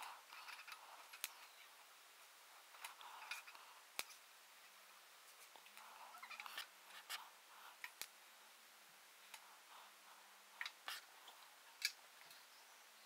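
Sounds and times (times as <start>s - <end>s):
small welding clicks: 0.3s - 1.5s, 2.8s - 4.2s, 7.8s - 8.2s, 11.8s - 12.4s.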